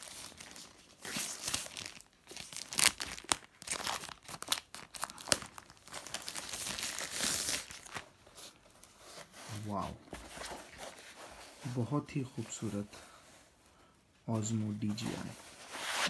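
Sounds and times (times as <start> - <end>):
plastic wrap crinkling and tearing: 0.0 - 9.0.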